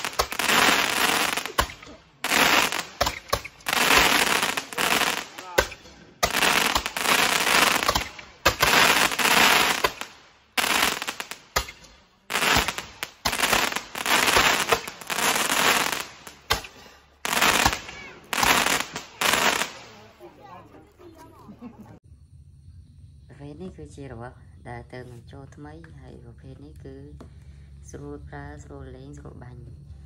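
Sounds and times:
hissing rush of sparks: 0:00.0 - 0:20.1
firework tubes cracking: 0:00.0 - 0:20.5.

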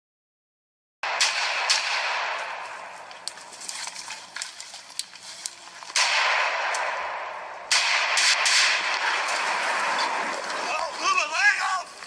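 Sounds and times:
rifle shots: 0:01.0 - 0:03.3, 0:05.9 - 0:10.7
small cracks: 0:01.8 - 0:07.0.

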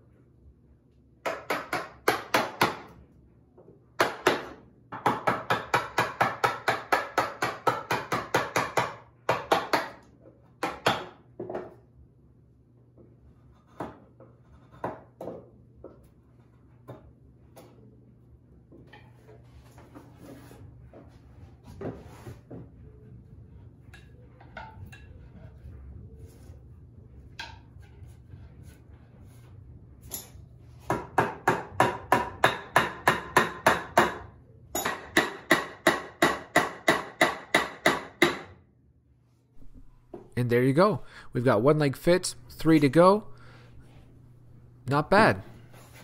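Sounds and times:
wooden mallet striking a chisel: 0:01.2 - 0:02.9, 0:04.0 - 0:10.0, 0:10.6 - 0:11.7, 0:30.9 - 0:38.5.

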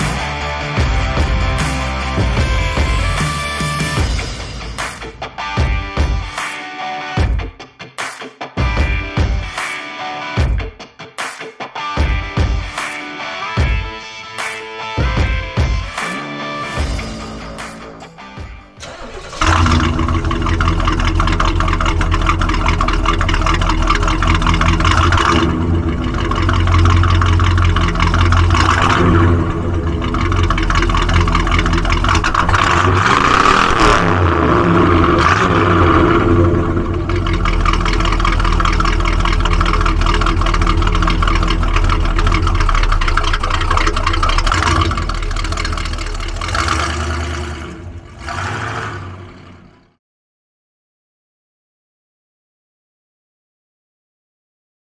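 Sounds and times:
car engine idling and revving: 0:00.0 - 0:06.5, 0:15.0 - 0:50.0
car driving off: 0:18.8 - 0:50.0.

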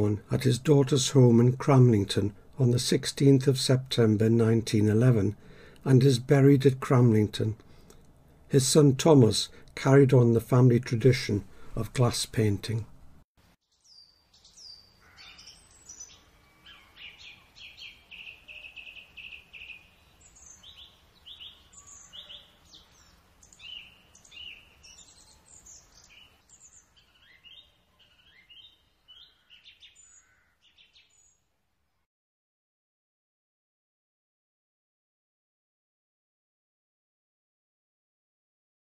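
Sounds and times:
birds chirping and whistling: 0:13.8 - 0:31.4.

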